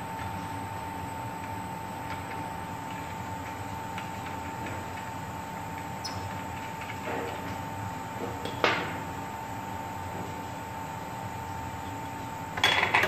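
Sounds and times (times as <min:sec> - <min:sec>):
machinery hum with whine: 0:00.0 - 0:13.0.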